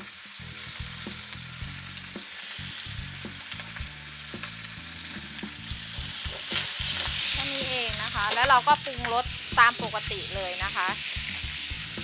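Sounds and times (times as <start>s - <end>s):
leaves sizzling in a wok: 0.0s - 12.0s.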